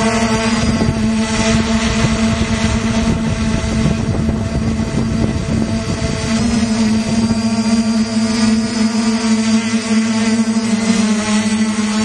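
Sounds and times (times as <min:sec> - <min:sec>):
wind buffeting microphone: 0:00.0 - 0:08.4
drone propellers humming: 0:00.0 - 0:12.0.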